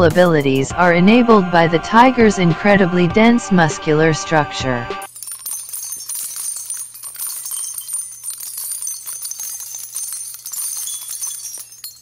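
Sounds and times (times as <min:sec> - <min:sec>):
high tinkling jingle: 0:05.0 - 0:12.0.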